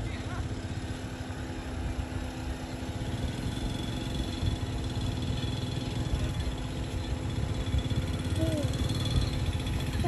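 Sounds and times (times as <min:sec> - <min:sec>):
jeep engine idling: 0:00.0 - 0:10.0.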